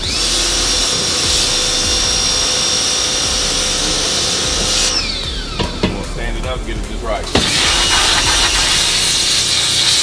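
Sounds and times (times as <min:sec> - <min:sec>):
pressure washer pump whine: 0:00.0 - 0:06.0, 0:07.3 - 0:10.0
water jet hissing: 0:07.4 - 0:10.0.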